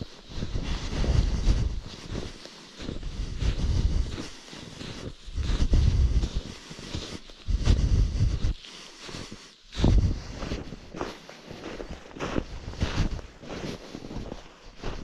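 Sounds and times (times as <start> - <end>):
wind buffeting microphone: 5.4 - 6.4, 7.4 - 8.6, 9.7 - 10.6.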